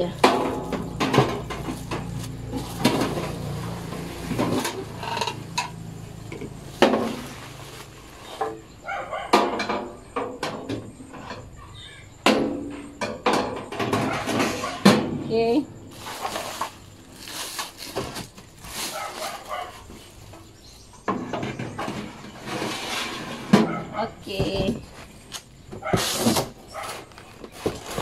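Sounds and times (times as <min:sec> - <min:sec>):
plastic wrap rustling: 0:00.0 - 0:04.9, 0:06.6 - 0:08.4, 0:15.9 - 0:20.5, 0:25.3 - 0:28.0.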